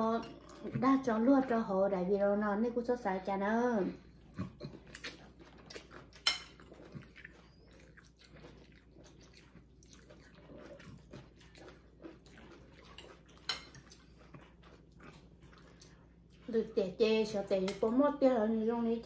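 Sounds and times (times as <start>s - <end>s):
noodle slurping and chewing: 4.0s - 17.5s
cutlery clicking on ceramic bowls: 6.2s - 6.6s, 13.4s - 13.9s.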